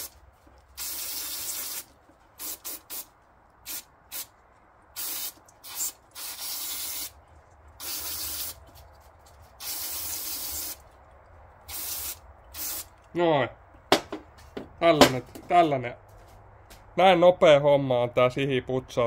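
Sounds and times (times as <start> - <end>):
aerosol spray hissing: 0.8 - 4.3, 5.0 - 7.2, 7.8 - 8.6, 9.6 - 10.8, 11.7 - 12.9.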